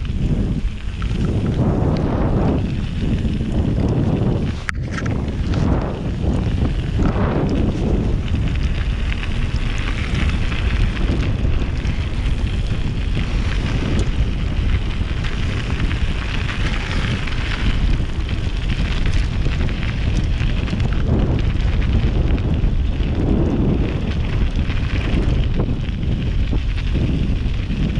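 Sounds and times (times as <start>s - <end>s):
tyres rolling over trail: 0.0s - 27.9s
wind buffeting microphone: 0.0s - 27.9s.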